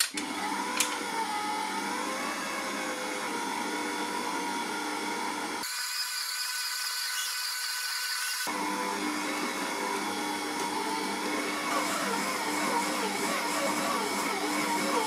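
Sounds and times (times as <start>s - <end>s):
stand mixer motor running: 0.2s - 5.6s, 8.4s - 15.0s.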